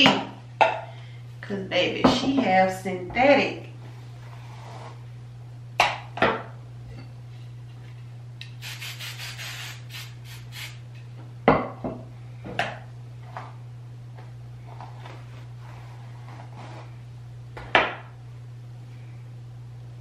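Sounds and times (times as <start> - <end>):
aerosol spray hissing: 8.5 - 10.8.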